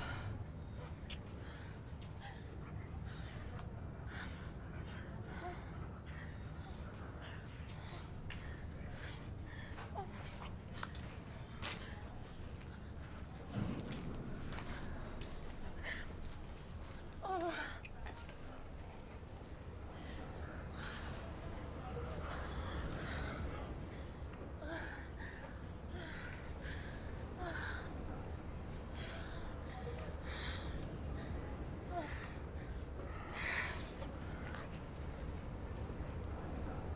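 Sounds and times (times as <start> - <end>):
cricket chirping: 0.0 - 36.9
low hum of night ambience: 0.0 - 36.9
low rumble: 13.4 - 17.1
soft low thump: 13.5 - 16.4.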